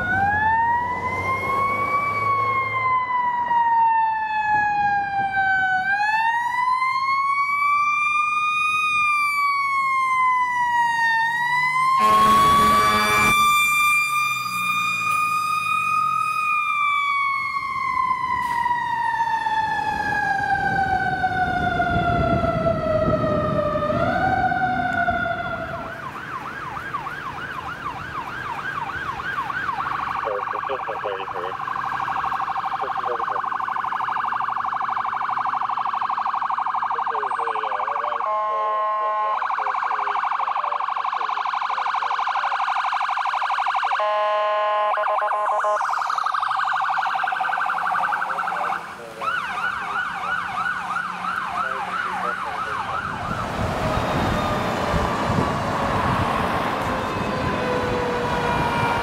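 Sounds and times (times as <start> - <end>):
mechanical siren winding down: 0.0 - 27.6, 28.5 - 59.0
electronic sirens yelping and wailing: 0.0 - 59.0
truck engine rumbling: 9.0 - 41.0, 45.4 - 59.0
horn blast: 12.0 - 13.5.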